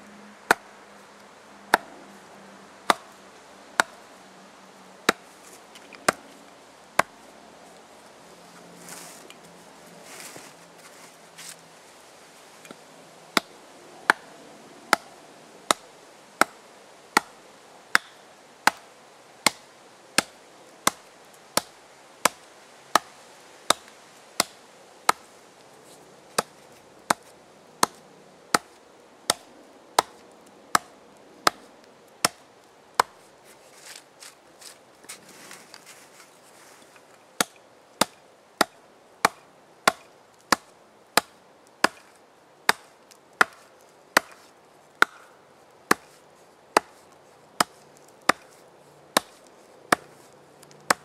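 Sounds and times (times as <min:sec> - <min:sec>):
axe chopping wood: 0:01.7 - 0:01.9, 0:02.9 - 0:03.2, 0:03.8 - 0:04.0, 0:05.1 - 0:06.3, 0:14.1 - 0:14.3, 0:17.2 - 0:19.6, 0:20.2 - 0:21.0, 0:21.6 - 0:23.1, 0:23.7 - 0:25.2, 0:26.3 - 0:26.5, 0:27.1 - 0:32.4, 0:33.0 - 0:33.2, 0:37.4 - 0:42.1, 0:42.7 - 0:45.3, 0:45.9 - 0:46.2, 0:46.8 - 0:48.6, 0:49.2 - 0:51.0
hand brushing wood chips: 0:05.1 - 0:12.8, 0:33.0 - 0:37.2.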